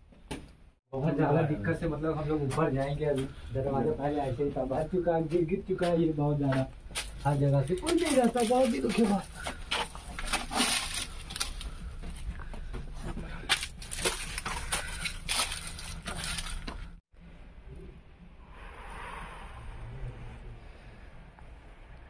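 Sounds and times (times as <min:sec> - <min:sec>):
footsteps crunching through leaves: 0:13.5 - 0:16.9.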